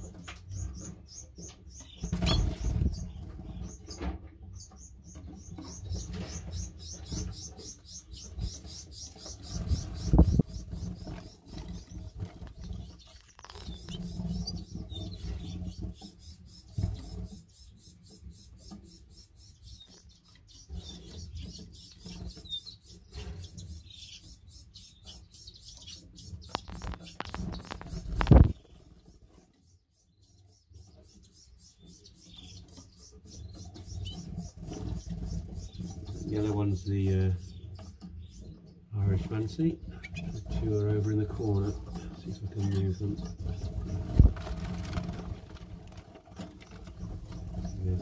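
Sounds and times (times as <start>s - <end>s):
canary chirps: 0.0s - 48.0s
microphone handling noise: 26.6s - 28.6s.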